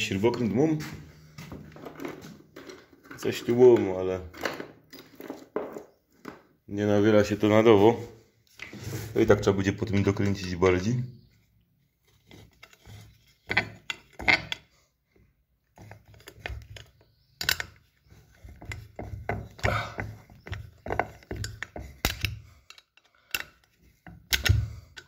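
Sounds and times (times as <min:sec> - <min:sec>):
small metallic clicks and knocks: 0:12.1 - 0:14.7, 0:15.7 - 0:25.0.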